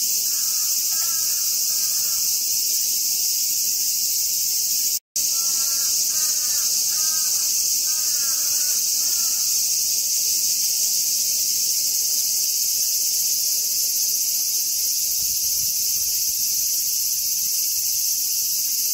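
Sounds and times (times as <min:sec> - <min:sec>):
cicadas buzzing: 0:00.0 - 0:18.9.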